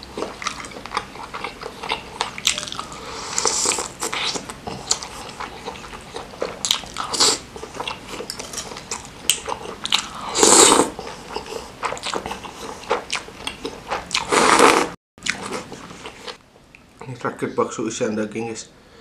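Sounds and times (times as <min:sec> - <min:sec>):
chewing and lip smacks: 0:00.1 - 0:03.0, 0:03.7 - 0:10.2, 0:11.0 - 0:14.3
slurping noodles: 0:02.2 - 0:05.8, 0:09.9 - 0:13.0, 0:14.2 - 0:16.3.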